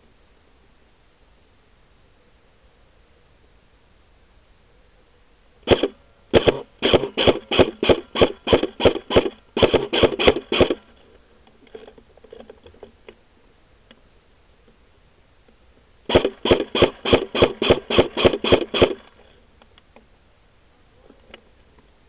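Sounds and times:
airsoft rifle shots: 0:05.7 - 0:10.9, 0:16.1 - 0:19.2
faint clicks: 0:19.6 - 0:20.1.

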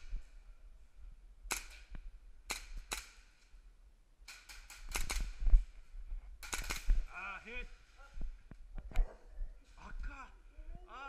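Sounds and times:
airsoft gun shots: 0:04.3 - 0:05.4, 0:06.4 - 0:07.1.

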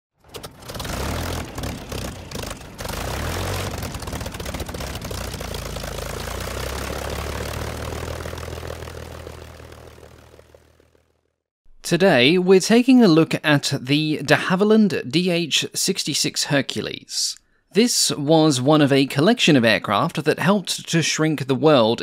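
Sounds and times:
propeller aircraft engine: 0:00.2 - 0:11.4.

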